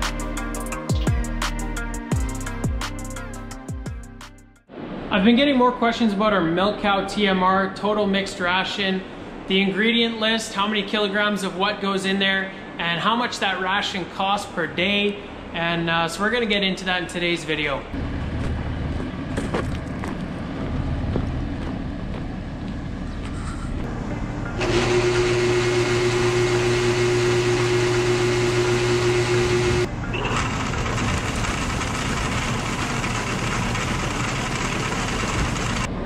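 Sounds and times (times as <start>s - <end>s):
tractor running: 18.0s - 36.0s
grain auger machine hum: 23.8s - 36.0s.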